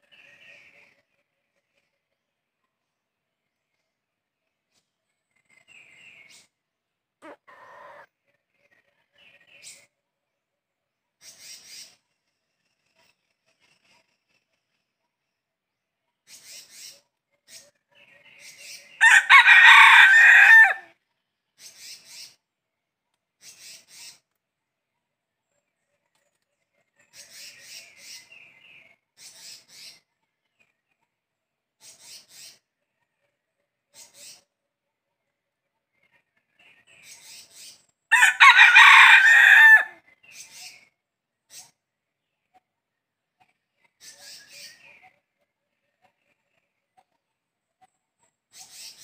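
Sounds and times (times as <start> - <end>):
rooster crowing: 19.0 - 20.9, 38.1 - 40.0.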